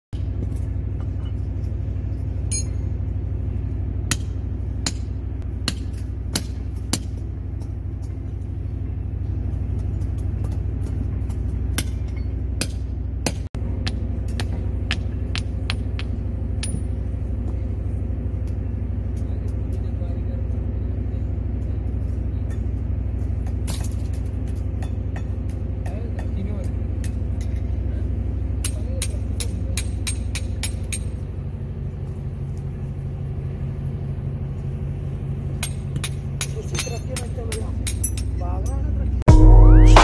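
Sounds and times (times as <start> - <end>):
hammer striking steel chisel: 11.8 - 17.0
steady low rumble: 39.2 - 40.0.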